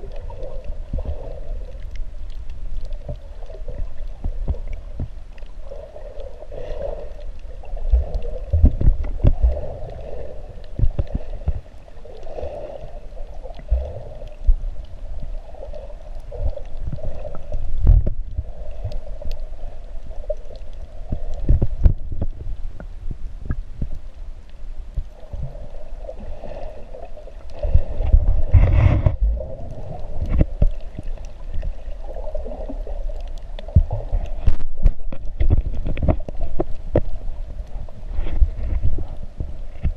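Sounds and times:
low water rumble: 0.0s - 39.9s
muffled underwater hum: 0.0s - 39.9s
underwater thumps: 7.9s - 9.6s, 17.8s - 18.2s, 28.0s - 29.4s, 33.7s - 37.2s.

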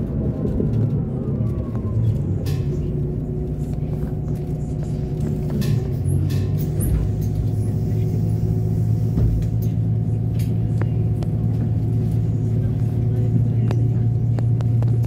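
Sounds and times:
bus engine idling: 0.0s - 15.0s.

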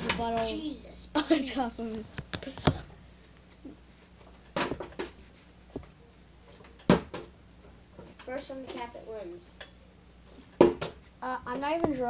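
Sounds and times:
plastic bottle knocking and thudding: 4.5s - 5.2s, 10.6s - 11.0s.

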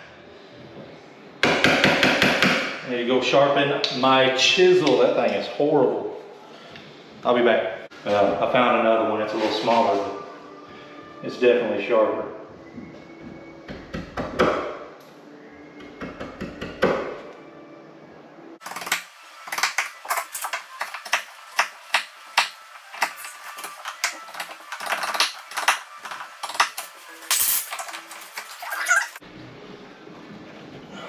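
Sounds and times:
chisel knocking on wood: 1.4s - 2.7s.

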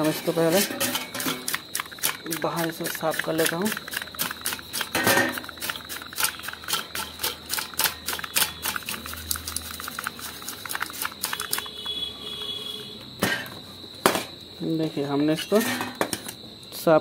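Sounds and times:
brush scratching and knocking: 0.0s - 11.7s.

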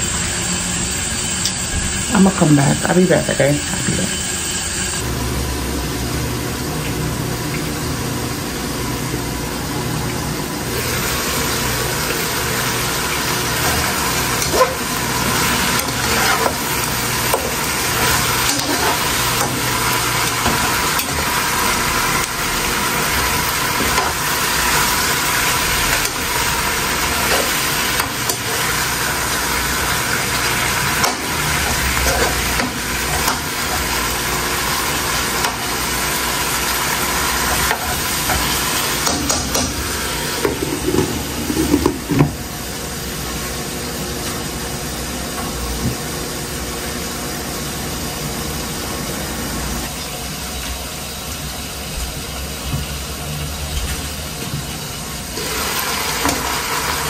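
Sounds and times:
meat sizzling in a pot: 0.0s - 57.0s
spatula stirring and scraping: 13.5s - 34.0s.

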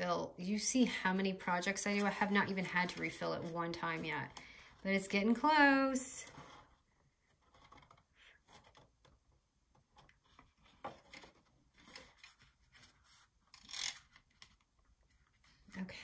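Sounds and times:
cardstock rustling and rubbing: 1.2s - 5.4s, 9.8s - 15.7s.

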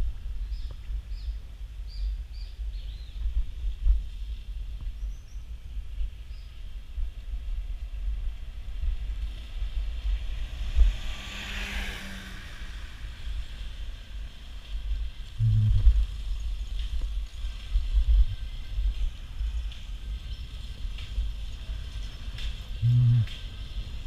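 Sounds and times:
wind buffeting microphone: 0.0s - 11.3s, 13.2s - 24.0s
road rumble: 5.5s - 24.0s
short low hum: 15.4s - 16.1s, 22.8s - 23.3s.

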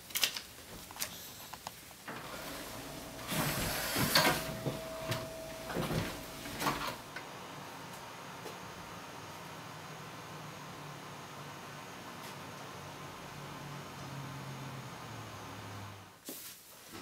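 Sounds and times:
drawers and doors clattering: 2.1s - 7.0s.

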